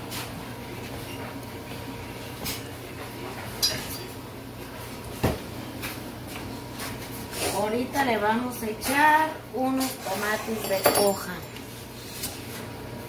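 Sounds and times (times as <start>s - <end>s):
utensils clinking against dishes: 3.6s - 4.2s, 9.7s - 11.7s.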